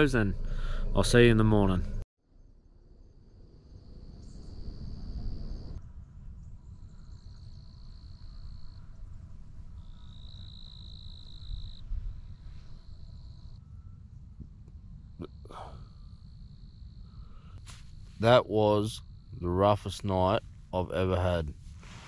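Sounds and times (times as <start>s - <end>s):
constant low rumble: 0.0s - 22.0s
insects trilling: 6.5s - 14.1s, 14.8s - 21.3s.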